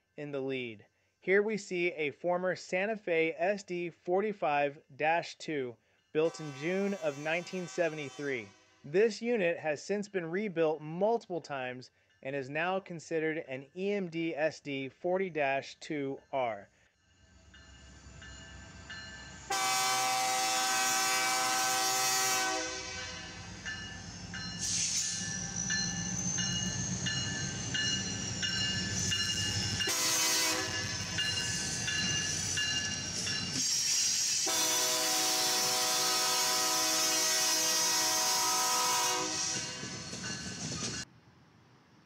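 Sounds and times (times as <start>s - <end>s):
train air horn blasts: 6.2s - 8.9s, 19.5s - 23.5s, 29.8s - 31.1s, 34.4s - 40.0s.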